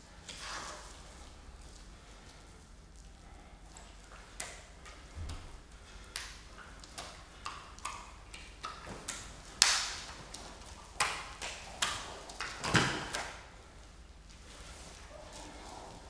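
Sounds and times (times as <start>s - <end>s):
wet slaps into hands: 6.1s - 13.4s.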